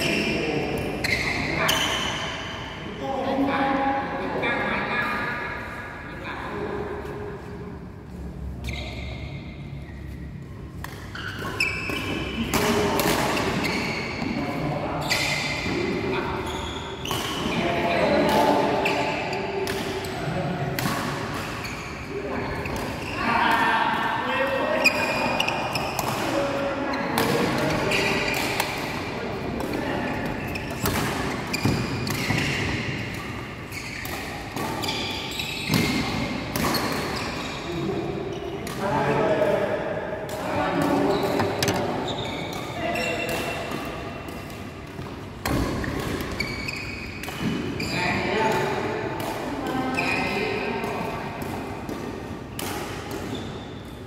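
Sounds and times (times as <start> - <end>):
shoes squeaking on court: 0.0 - 2.6, 7.0 - 17.6, 21.4 - 23.2, 26.9 - 38.8, 40.9 - 44.0, 44.9 - 48.7, 49.7 - 50.6
rackets striking shuttlecock: 10.7 - 13.9, 18.2 - 22.0, 40.2 - 47.8
rackets hitting shuttlecock: 10.7 - 14.4, 17.0 - 22.0, 24.9 - 37.4, 40.2 - 54.0.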